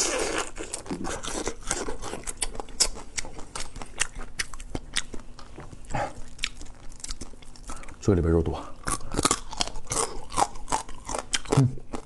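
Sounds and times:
crab shell crunching: 8.8s - 12.0s.

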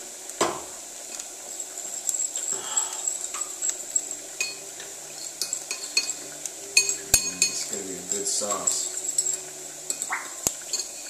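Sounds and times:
vegetables sizzling in a pan: 0.0s - 11.0s
kitchenware clinking and knocking: 6.8s - 11.0s.

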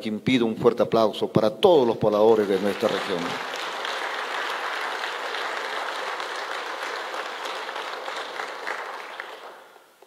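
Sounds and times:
audience applauding: 2.3s - 9.8s.

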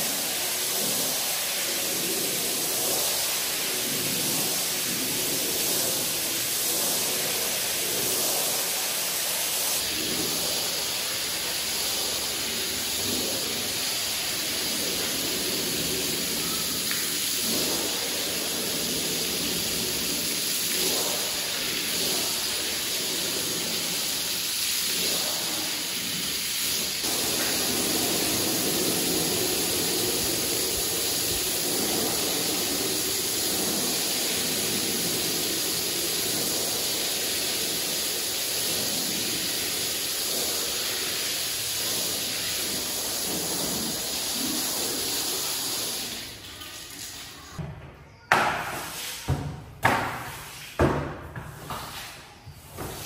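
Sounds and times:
water spraying onto carpet: 0.0s - 47.2s.

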